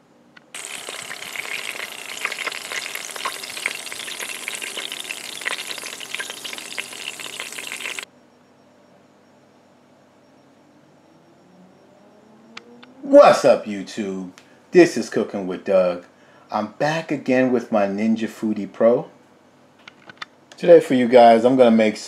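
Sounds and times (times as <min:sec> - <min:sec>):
bacon sizzling and popping: 0:00.5 - 0:08.1.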